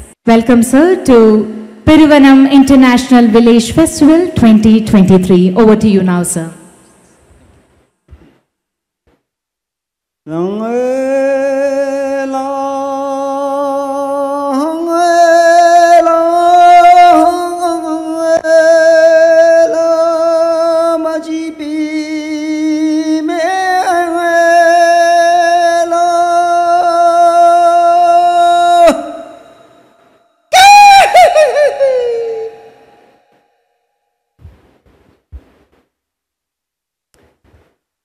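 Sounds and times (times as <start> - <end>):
man singing unaccompanied: 10.2 - 29.5.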